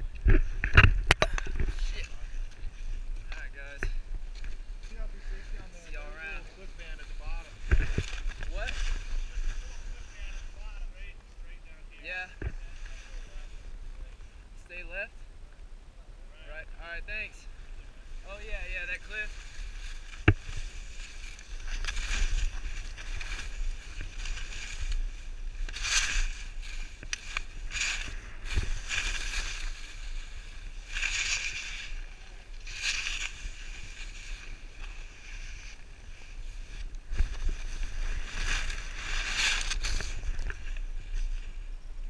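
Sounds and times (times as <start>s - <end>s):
wind rumble on microphone: 0.0s - 42.0s
skis scraping over snow: 18.1s - 41.6s.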